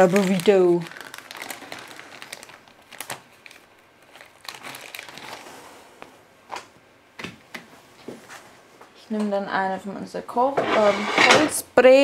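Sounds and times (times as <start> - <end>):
tortilla wrap crinkling: 0.0 - 5.7.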